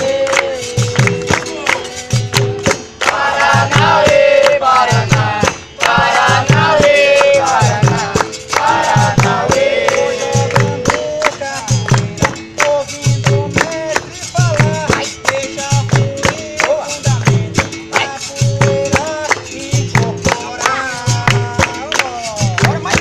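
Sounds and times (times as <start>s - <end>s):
hand clapping: 0.0s - 23.0s
pandeiro jingles: 0.0s - 23.0s
steady drum beat: 0.0s - 23.0s.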